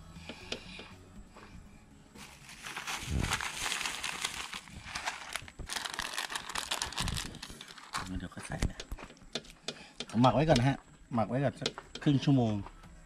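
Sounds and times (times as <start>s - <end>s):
crinkling rustle of handling: 2.2s - 8.6s.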